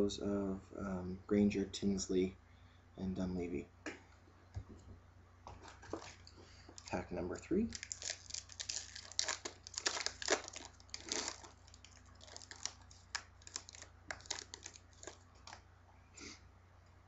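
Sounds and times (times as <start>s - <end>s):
card pack wrapper crinkling: 5.6s - 15.6s.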